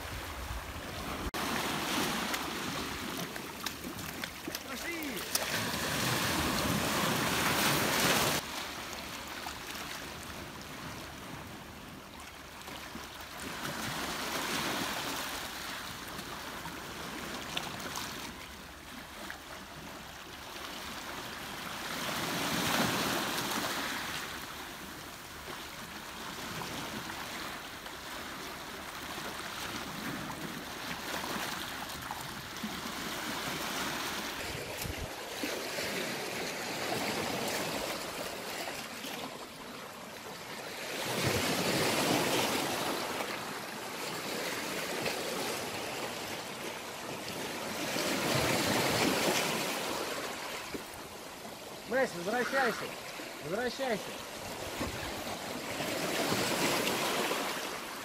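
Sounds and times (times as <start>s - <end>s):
sea surf breaking on rocks: 0.0s - 11.6s, 20.7s - 24.7s, 28.3s - 51.0s, 51.6s - 58.0s.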